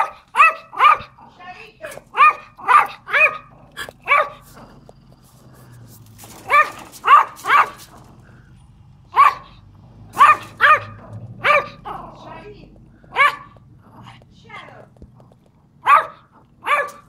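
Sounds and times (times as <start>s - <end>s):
small dog barking: 0.0s - 4.8s, 6.3s - 8.1s, 9.1s - 14.2s, 15.7s - 17.0s.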